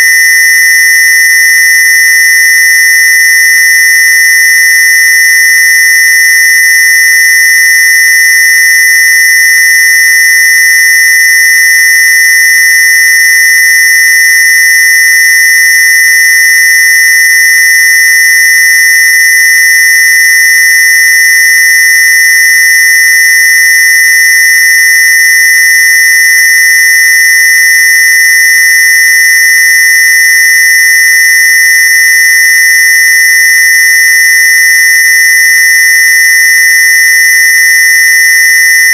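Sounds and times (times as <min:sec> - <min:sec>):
high-pitched square-wave tone: 0:00.0 - 0:24.8.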